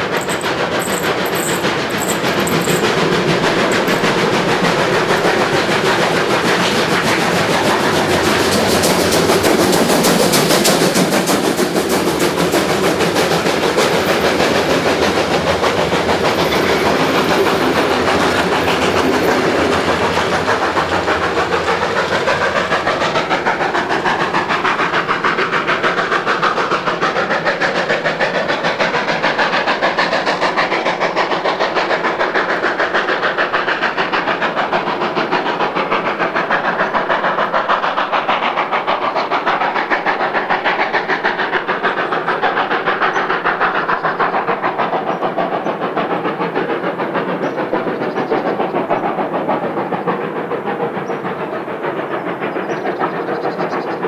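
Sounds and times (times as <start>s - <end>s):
coaches rumbling and clattering: 0.0s - 6.0s
steam locomotive exhaust beats: 0.0s - 54.0s.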